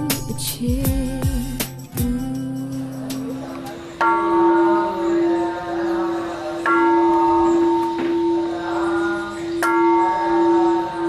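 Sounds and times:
large bell struck: 6.6 - 11.0.

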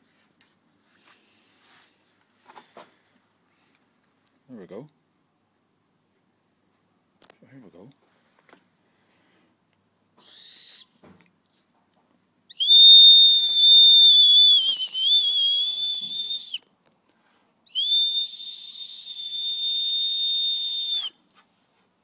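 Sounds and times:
high-pitched whistle blasts: 12.5 - 16.6, 17.7 - 21.2.

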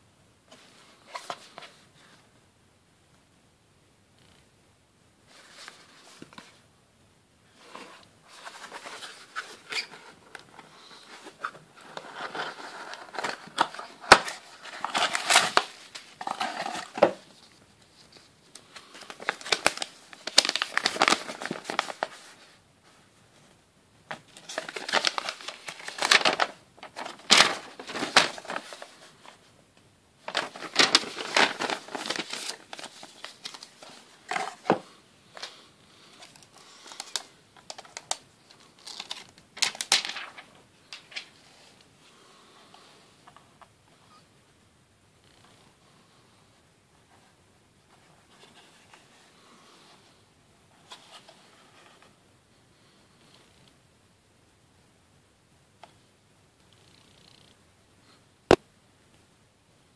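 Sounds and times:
cardboard box opening: 7.7 - 17.3, 19.0 - 22.1, 24.4 - 29.0, 30.3 - 34.8
plastic wrapping crinkling: 8.4 - 22.4, 24.2 - 29.4, 30.2 - 34.8, 36.2 - 41.3
paper leaflet unfolding: 24.4 - 29.0, 30.2 - 34.8.

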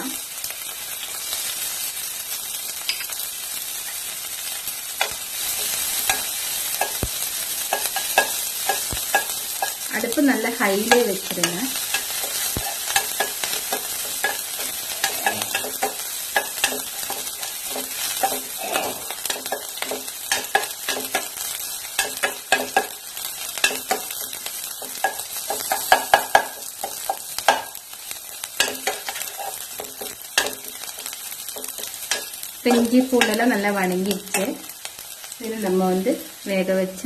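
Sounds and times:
food sizzling in hot oil: 0.0 - 37.0
spatula scraping metal pan: 10.8 - 21.4.

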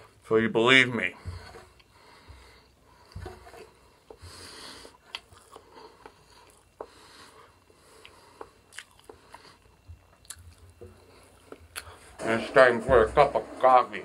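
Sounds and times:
eggshell crackling: 0.8 - 12.1
chewing: 1.4 - 12.0.

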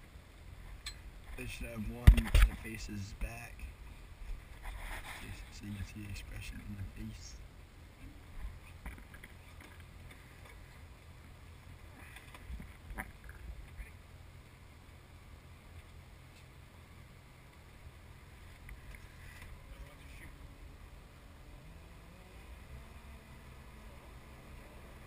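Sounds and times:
muffled motorboat rumble: 17.8 - 25.0.

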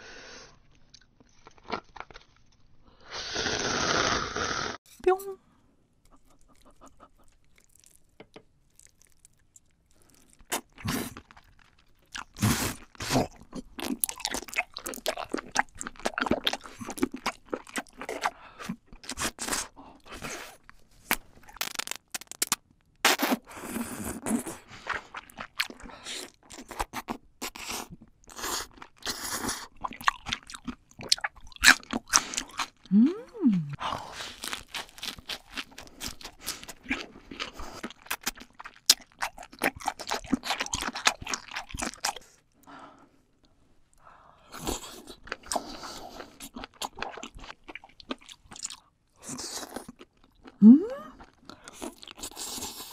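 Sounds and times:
wet chewing and crunching: 0.7 - 2.7, 6.1 - 22.6, 24.1 - 32.9, 33.8 - 42.6, 44.5 - 52.9
mouth clicks and smacks: 21.1 - 23.4.

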